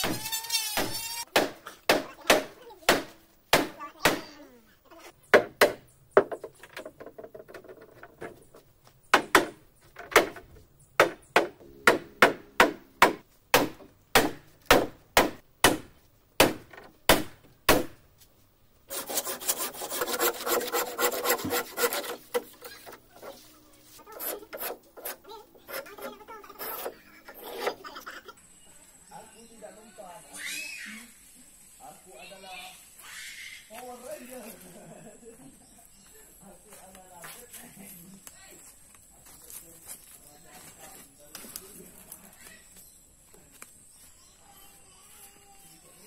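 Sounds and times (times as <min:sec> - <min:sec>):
hammer striking wood: 0:00.8 - 0:04.3, 0:05.3 - 0:07.1, 0:09.1 - 0:18.0
hand plane scraping wood: 0:18.9 - 0:28.0
wood being rasped: 0:18.9 - 0:28.0.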